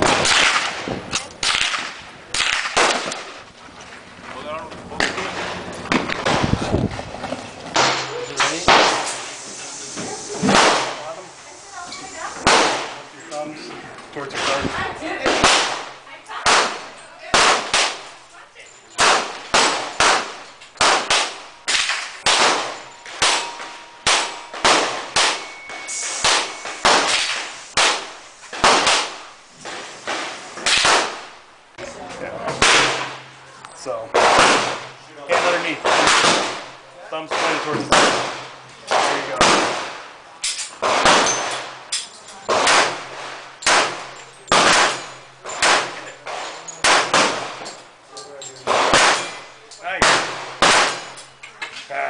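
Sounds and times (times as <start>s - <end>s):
pistol shots with ringing echo: 0.0s - 3.3s, 7.7s - 9.2s, 10.5s - 11.1s, 12.4s - 13.1s, 15.2s - 18.3s, 18.9s - 29.4s, 30.1s - 31.4s, 32.5s - 33.3s, 34.1s - 47.8s, 48.6s - 51.4s.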